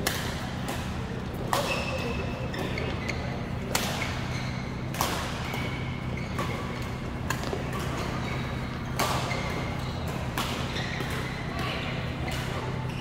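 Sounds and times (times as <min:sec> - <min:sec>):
rackets hitting shuttlecock: 0:00.0 - 0:02.9, 0:03.6 - 0:12.9
shoe squeaks on court floor: 0:01.6 - 0:11.6.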